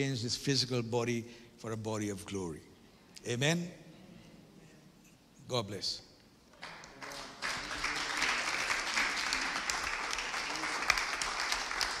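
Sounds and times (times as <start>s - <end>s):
audience applause: 6.6s - 12.0s.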